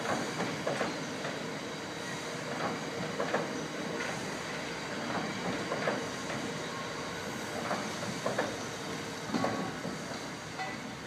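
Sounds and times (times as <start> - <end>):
train rumbling over bridge: 0.0 - 11.0
train wheels knocking: 2.5 - 3.6, 7.6 - 8.6.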